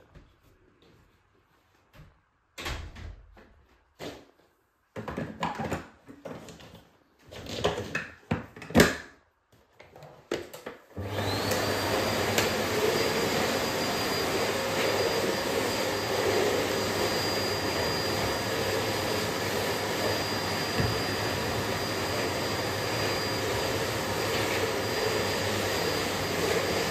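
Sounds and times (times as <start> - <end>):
vacuum cleaner running: 10.9 - 26.9.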